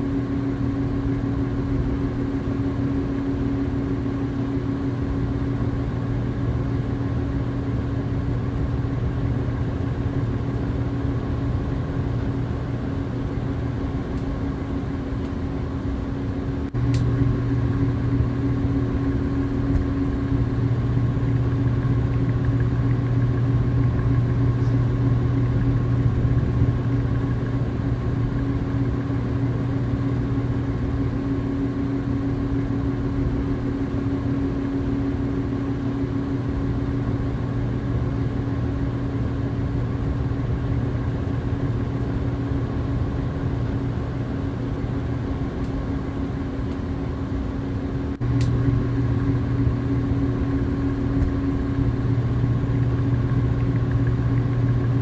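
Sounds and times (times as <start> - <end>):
steady machine hum: 0.0 - 55.0.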